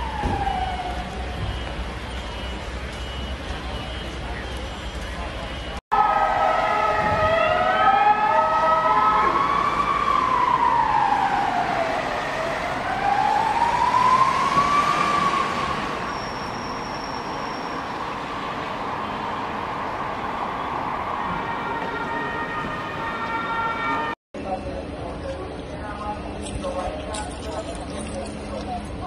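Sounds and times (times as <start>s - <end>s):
siren wailing: 0.0s - 2.5s, 5.9s - 24.2s
other siren tones: 0.0s - 24.2s
street noise: 0.0s - 29.0s.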